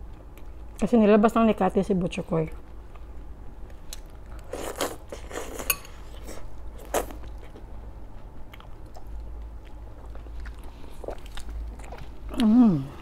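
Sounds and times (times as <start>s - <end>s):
chewing: 3.9s - 13.0s
cutlery clinking against plate: 5.6s - 6.0s.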